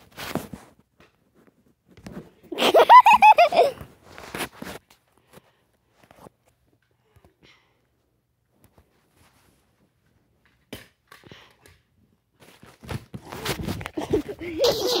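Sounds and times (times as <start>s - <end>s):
high-pitched giggle: 2.5s - 3.8s, 14.0s - 15.0s.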